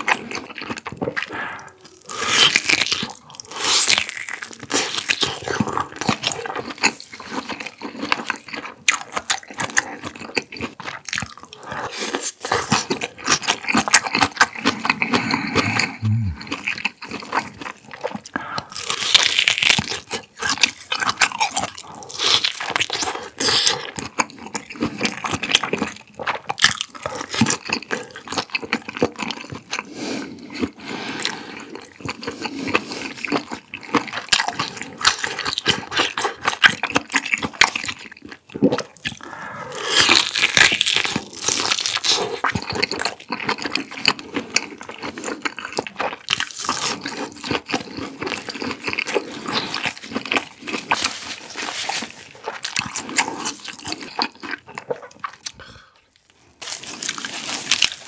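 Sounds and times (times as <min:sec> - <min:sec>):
crunchy chewing: 0:00.0 - 0:58.0.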